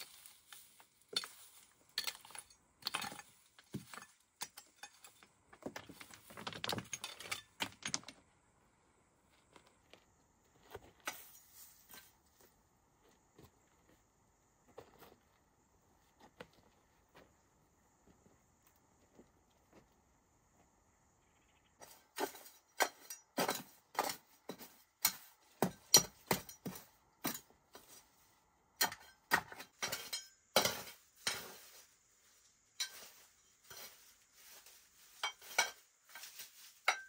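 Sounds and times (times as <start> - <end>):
scraping dirt: 0.0 - 8.4, 9.0 - 20.6, 21.8 - 37.0
stones clicking and clattering: 0.1 - 8.3.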